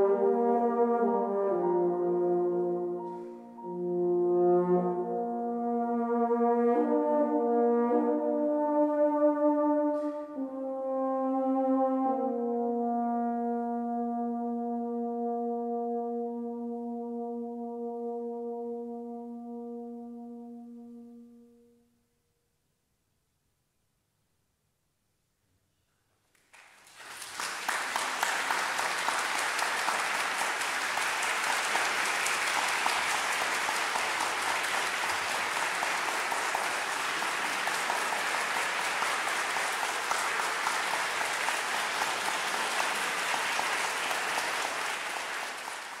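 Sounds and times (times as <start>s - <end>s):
concert audience applauding: 26.3s - 46.0s.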